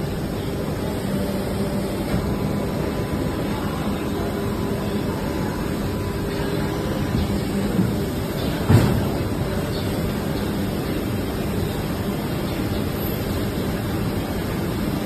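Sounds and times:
injection moulding machine droning: 0.0 - 15.0.

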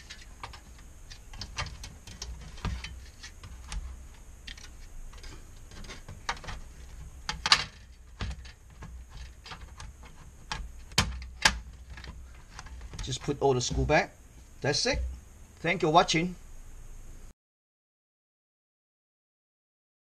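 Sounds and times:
sheet metal clicks and knocks: 4.5 - 13.9.

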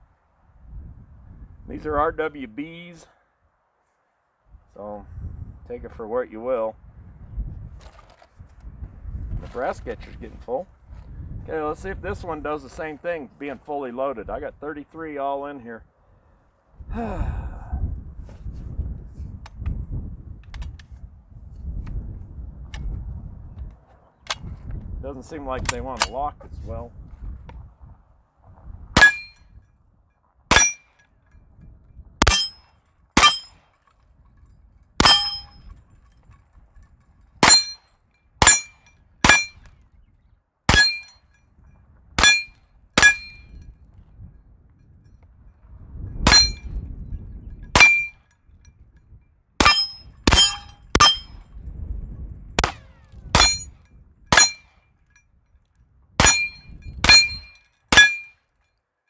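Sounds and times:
metallic ring of steel targets: 29.0 - 29.7, 30.5 - 31.6, 32.2 - 39.7, 40.7 - 43.8, 46.2 - 48.8, 49.6 - 51.6, 52.6 - 55.4, 56.2 - 58.7
gunshots: 52.6 - 53.7.

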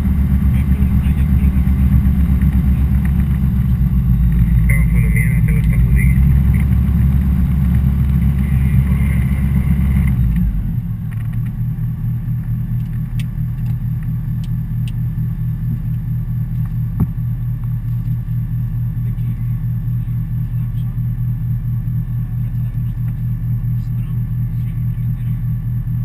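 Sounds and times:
propeller aircraft engine: 0.0 - 26.0.

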